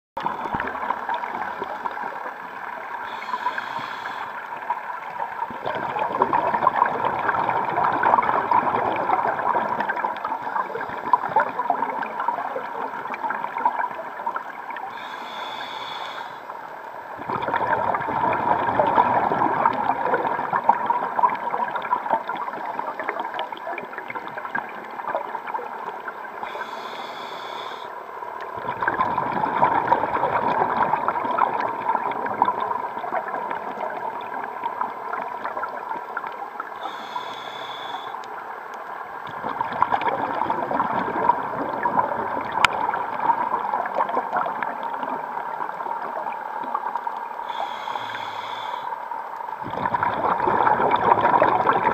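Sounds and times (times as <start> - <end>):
exhaled bubbles gurgling underwater: 0.2 - 51.9
regulator inhalation hiss: 3.0 - 4.5, 14.9 - 16.6, 26.4 - 28.0, 36.8 - 38.2, 47.4 - 49.1.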